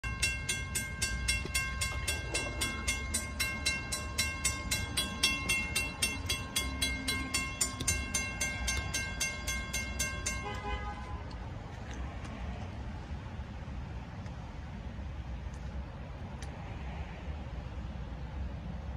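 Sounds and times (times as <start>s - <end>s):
low rumble: 0.0s - 10.4s
crossing warning bell ringing: 0.0s - 11.6s.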